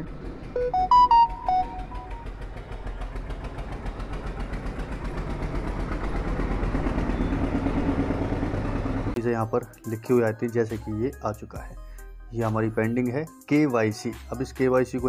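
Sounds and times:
engine running steadily: 0.0 - 9.2
musical notes: 0.6 - 2.3.

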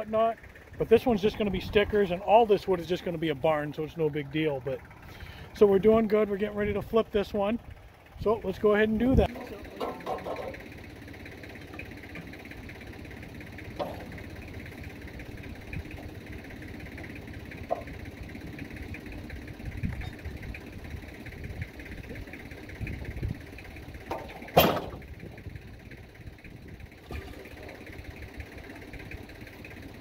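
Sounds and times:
steady engine hum: 0.0 - 30.0
log knocking on steel bed: 9.3 - 10.6, 13.8 - 14.2, 17.7 - 18.0
loud sharp metal clank: 24.4 - 25.0.

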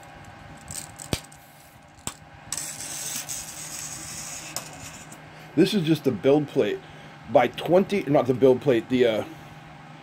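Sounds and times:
tape measure blade pulled out: 2.5 - 5.2.

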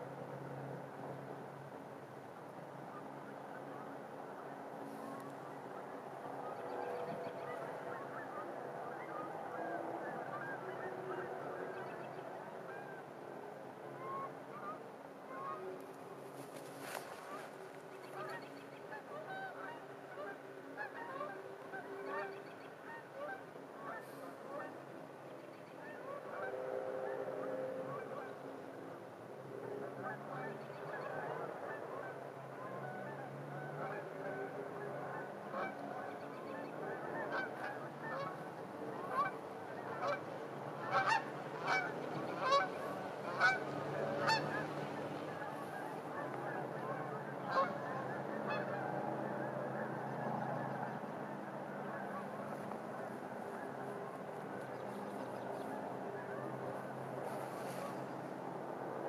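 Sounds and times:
geese honking: 2.9 - 13.1, 14.0 - 24.8, 25.8 - 28.6, 29.6 - 58.2.

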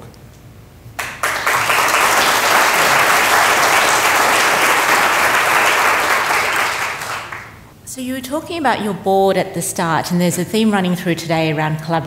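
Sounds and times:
audience applauding: 1.0 - 7.6.

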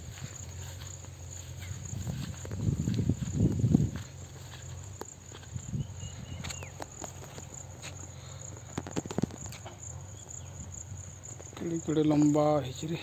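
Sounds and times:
footsteps through plants: 0.0 - 10.4
high insect drone: 0.0 - 13.0.

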